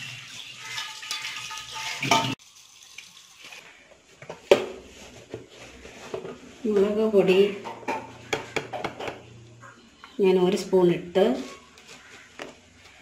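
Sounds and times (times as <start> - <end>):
water splashing in metal pan: 0.0 - 3.6.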